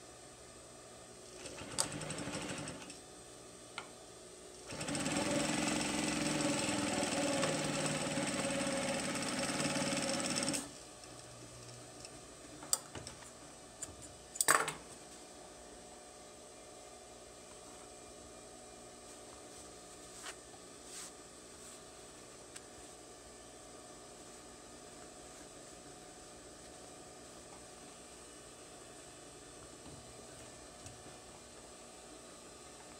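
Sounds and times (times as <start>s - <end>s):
sewing machine stitching: 1.4s - 2.9s, 4.7s - 10.7s
fabric rustling: 19.1s - 21.8s.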